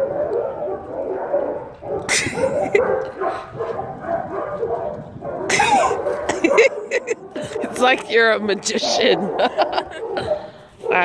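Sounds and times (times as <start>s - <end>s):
young dog whining and yipping: 0.0s - 7.9s.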